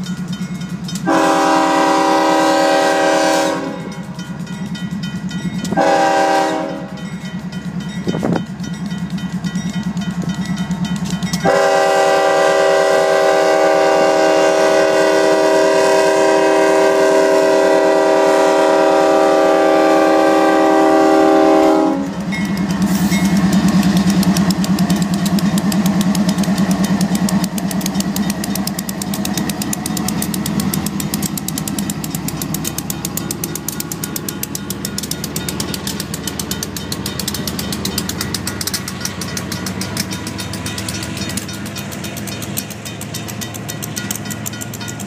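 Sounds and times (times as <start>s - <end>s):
crossing bell ringing: 0.0s - 16.7s, 18.2s - 45.0s
locomotive engine: 0.0s - 45.0s
passing train: 0.0s - 45.0s
locomotive air horn: 1.0s - 4.1s, 5.8s - 7.0s, 11.4s - 22.2s.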